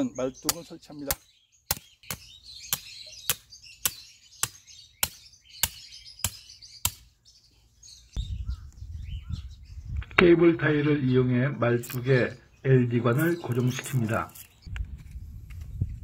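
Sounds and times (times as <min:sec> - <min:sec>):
birds chirping: 0:00.0 - 0:16.0.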